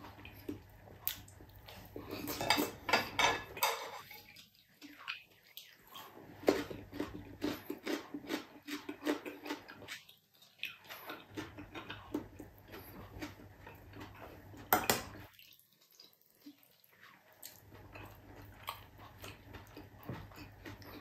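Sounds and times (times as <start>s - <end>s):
chewing with mouth clicks: 0.0s - 3.1s, 4.0s - 21.0s.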